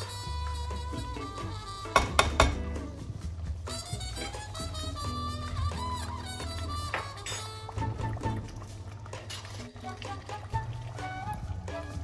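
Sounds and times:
background music: 0:00.0 - 0:12.0
metal utensil clinking on pot: 0:07.0 - 0:07.6.

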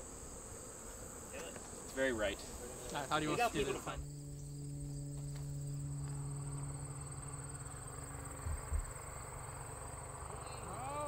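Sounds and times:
crickets trilling: 0:00.0 - 0:11.0
low hum: 0:02.4 - 0:10.9.

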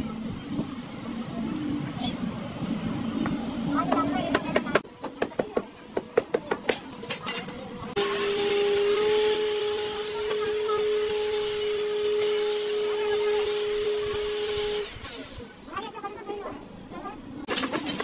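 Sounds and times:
small electric motor humming: 0:08.0 - 0:15.8.

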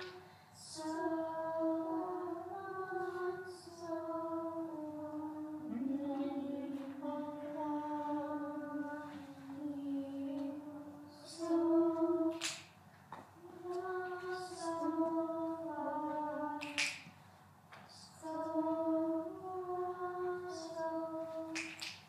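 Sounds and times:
choir singing in unison: 0:00.0 - 0:12.4, 0:13.6 - 0:16.8.

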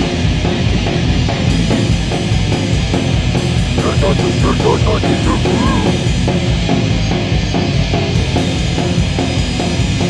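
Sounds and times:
loud rock music: 0:00.0 - 0:10.0
driving drum-kit beat: 0:01.6 - 0:06.5.

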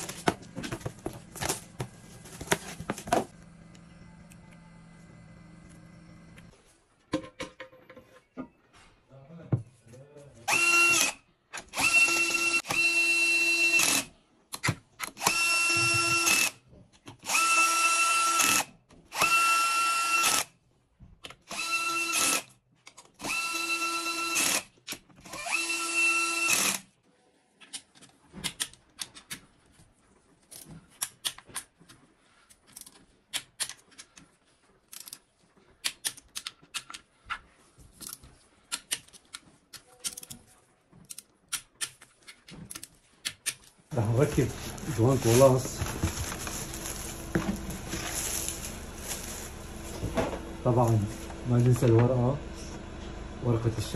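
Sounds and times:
cordless drill motor whine: 0:10.5 - 0:11.2, 0:11.8 - 0:14.1, 0:15.2 - 0:16.6, 0:17.3 - 0:18.6, 0:19.2 - 0:20.4, 0:21.5 - 0:22.4, 0:23.2 - 0:24.6, 0:25.3 - 0:26.8.

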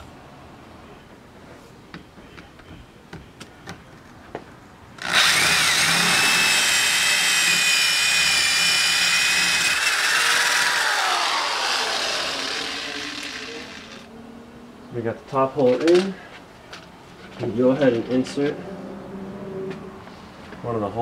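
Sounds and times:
drill whining: 0:05.0 - 0:14.1.

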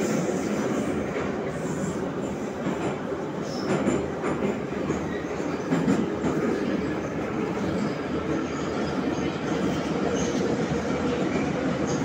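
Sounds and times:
train wheels rumbling on rails: 0:00.0 - 0:12.0
train wheel clacks: 0:02.5 - 0:06.8.

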